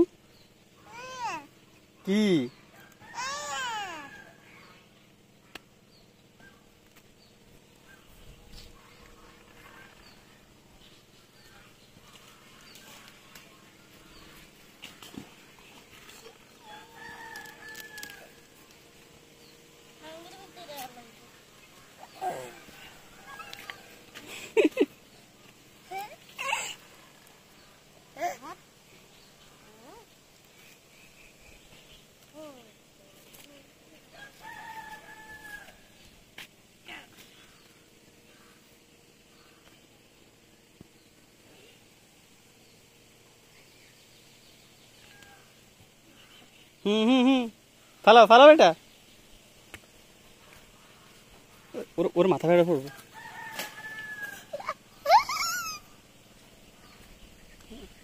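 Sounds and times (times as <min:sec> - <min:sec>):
rooster crowing: 0:02.7 - 0:04.6, 0:16.6 - 0:18.5, 0:22.3 - 0:24.0, 0:34.1 - 0:35.9, 0:52.8 - 0:55.8.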